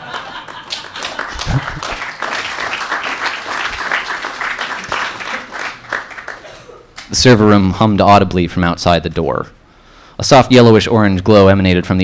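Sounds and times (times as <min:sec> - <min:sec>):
audience applause: 0:00.0 - 0:06.5.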